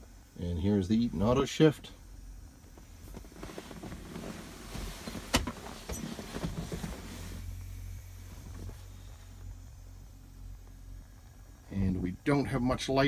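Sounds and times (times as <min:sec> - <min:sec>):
steady low hum: 0:00.0 - 0:13.0
rustling and handling noises: 0:02.7 - 0:07.6.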